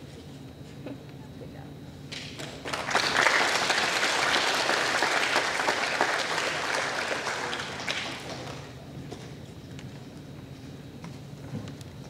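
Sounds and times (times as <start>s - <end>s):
audience applause: 2.3s - 8.8s.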